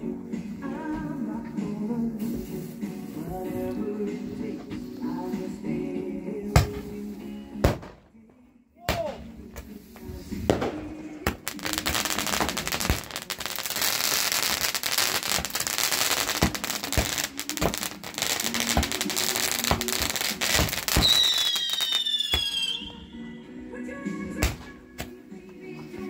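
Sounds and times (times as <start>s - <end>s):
fireworks crackling and popping: 7.6s - 8.0s, 9.6s - 23.0s, 24.4s - 25.1s
firework whistle: 18.5s - 23.0s.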